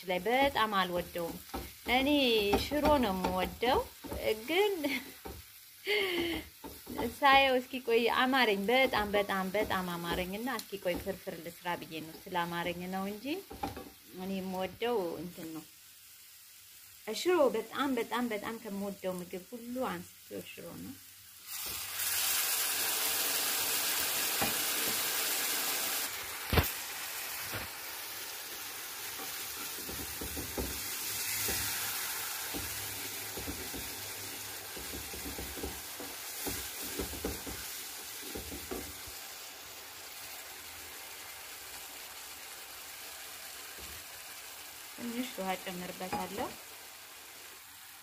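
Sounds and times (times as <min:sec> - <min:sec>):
sauce sizzling in a pan: 0:00.0 - 0:48.0
wooden spoon knocking a pan: 0:01.0 - 0:04.5, 0:05.1 - 0:05.5, 0:06.2 - 0:07.2, 0:08.8 - 0:11.3, 0:13.4 - 0:14.0, 0:24.4 - 0:25.0, 0:29.2 - 0:31.8, 0:32.5 - 0:39.0, 0:46.1 - 0:46.6.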